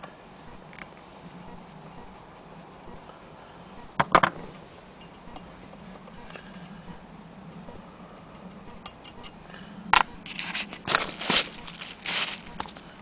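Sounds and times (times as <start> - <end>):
rustling handling noise: 10.2 - 13.0.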